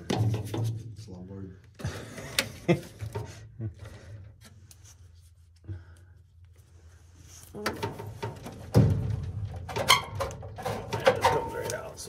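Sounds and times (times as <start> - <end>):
sharp clicks and knocks: 7.6 - 12.0.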